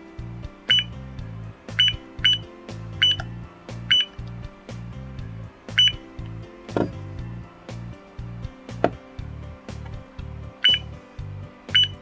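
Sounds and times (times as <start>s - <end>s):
background music: 0.0s - 12.0s
alarm clock short high beeps: 0.7s - 0.9s, 1.8s - 3.2s, 5.8s - 6.0s, 10.6s - 10.8s, 11.7s - 12.0s.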